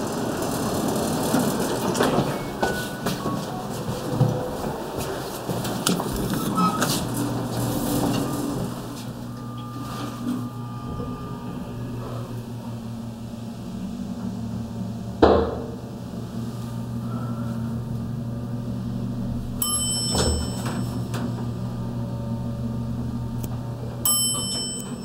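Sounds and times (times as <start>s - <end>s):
elevator machinery hum: 0.0s - 25.0s
loud ringing clunk: 19.6s - 21.5s, 24.1s - 25.0s.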